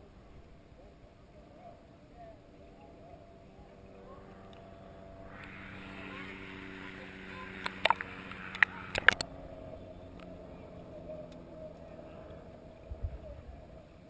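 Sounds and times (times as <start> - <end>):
muffled underwater hum: 0.0 - 14.0
underwater clicks and knocks: 7.6 - 9.2.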